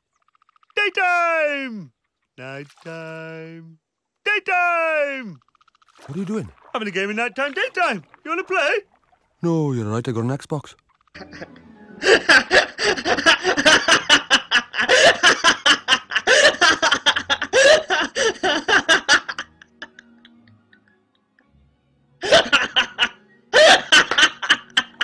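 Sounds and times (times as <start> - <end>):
woman laughing hard: 11.2 - 20.0, 22.2 - 25.0.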